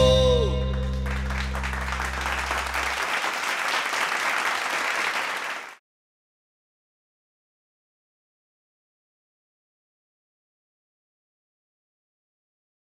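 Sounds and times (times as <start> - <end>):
band holding low note: 0.0 - 3.0
audience applauding: 0.8 - 5.8.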